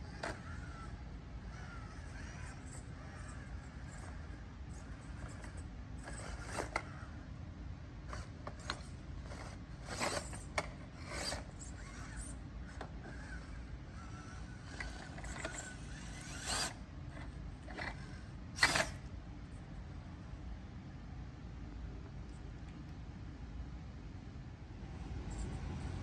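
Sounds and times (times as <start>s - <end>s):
toy car scraping on stone: 0.1s - 7.2s, 8.0s - 16.8s, 17.7s - 19.0s.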